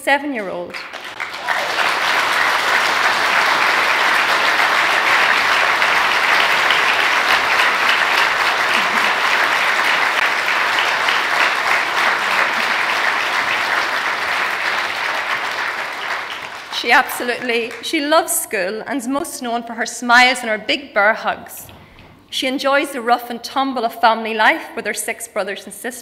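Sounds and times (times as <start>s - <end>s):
audience applauding: 0.8s - 18.0s.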